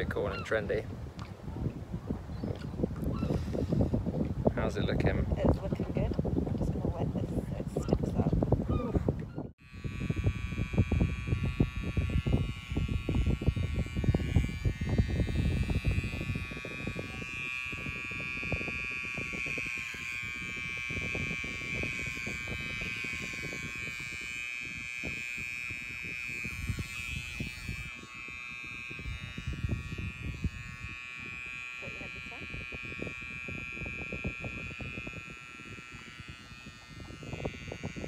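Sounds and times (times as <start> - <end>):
gusty low rumble: 0.0 - 31.4
electric hair clippers buzzing: 9.6 - 38.0.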